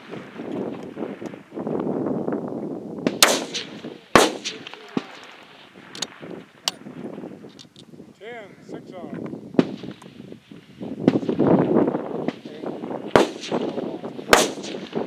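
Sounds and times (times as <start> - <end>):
rifle shots: 3.0 - 6.9, 9.6 - 10.2, 11.0 - 15.0
distant rifle shots: 3.1 - 6.8, 9.6 - 10.2, 13.1 - 15.0.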